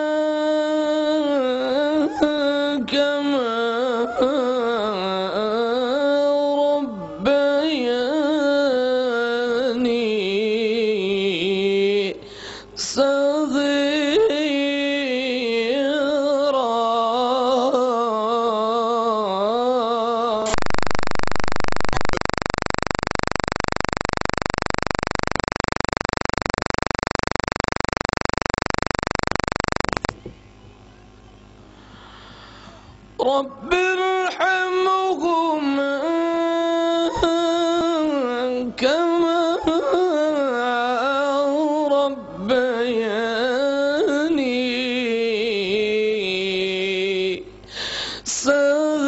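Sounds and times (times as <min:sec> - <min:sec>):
man chanting into a microphone: 0:00.0 - 0:20.5, 0:33.2 - 0:47.5, 0:48.2 - 0:49.0
loud static hiss: 0:02.8 - 0:49.0.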